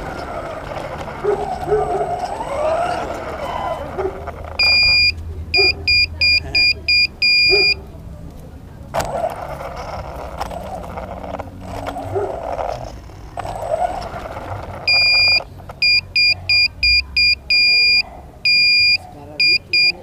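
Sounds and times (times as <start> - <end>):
rc car motor and tyres on concrete: 0.0 - 20.0
electronic beeper beeping: 4.6 - 7.8, 14.9 - 20.0.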